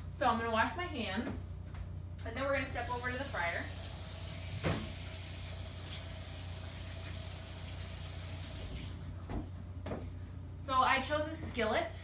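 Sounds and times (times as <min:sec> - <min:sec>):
tap water running: 0:02.7 - 0:09.4.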